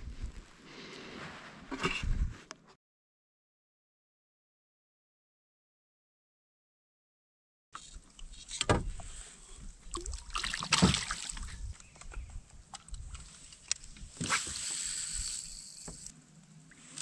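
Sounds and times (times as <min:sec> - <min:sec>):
water and wind noise: 0:07.8 - 0:17.0.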